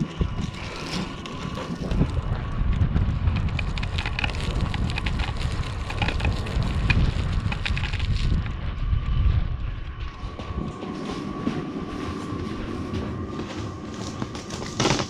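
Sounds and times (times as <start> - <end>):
wind rumbling on microphone: 0.0 - 15.0
foil duct crinkling: 3.2 - 8.5, 13.9 - 15.0.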